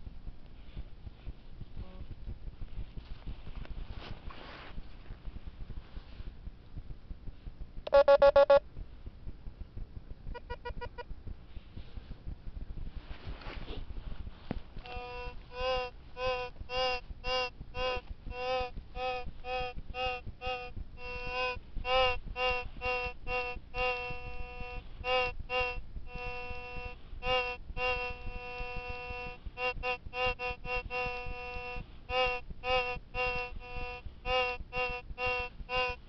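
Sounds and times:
metal detector beeping: 7.9 - 8.6, 10.3 - 11.1, 14.8 - 36.0.

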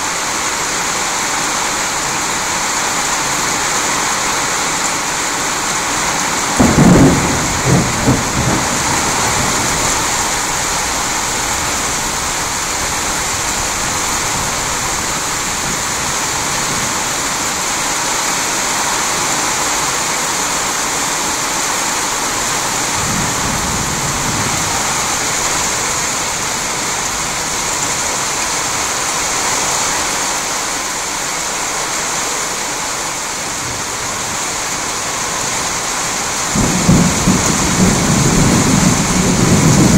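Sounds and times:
steady rain: 0.0 - 39.9
thunder crack and rumble: 6.5 - 17.0, 36.4 - 39.9.

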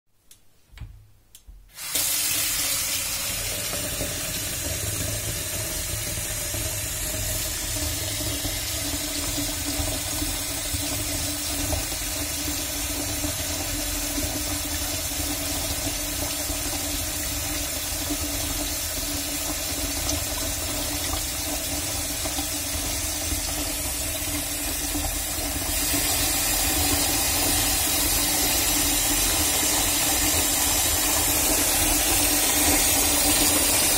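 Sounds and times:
water splashing into a sink: 1.7 - 33.9
tap water pouring into a vase: 1.8 - 12.1.

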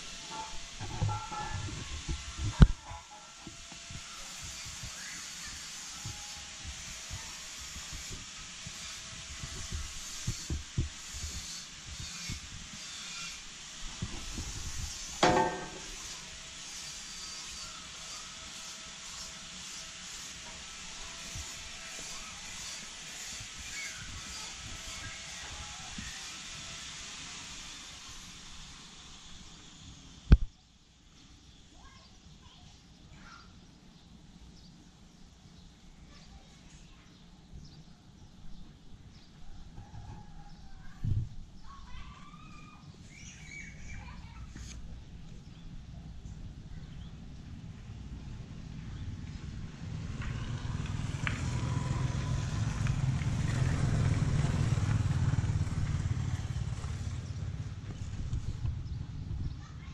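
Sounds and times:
hiss: 0.0 - 33.5, 41.6 - 44.9, 49.5 - 58.6
faint bird chirps: 41.6 - 44.5
diesel engine throbbing: 49.3 - 59.3.

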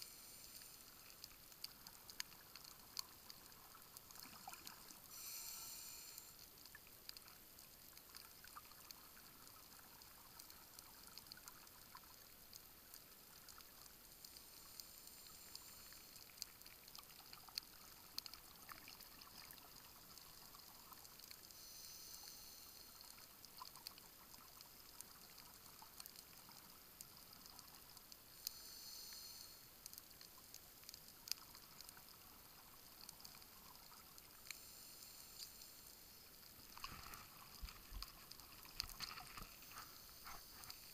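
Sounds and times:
scuba regulator bubbling hiss: 0.0 - 1.6, 4.2 - 6.7, 14.2 - 16.8, 21.4 - 23.6, 28.3 - 30.3, 33.9 - 40.9.

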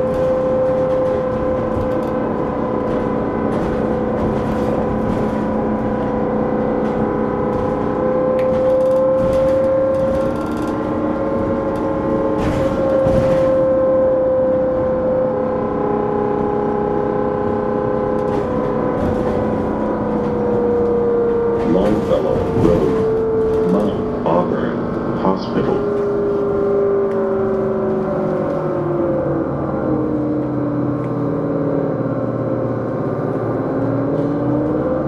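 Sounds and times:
road rumble: 0.0 - 35.0.

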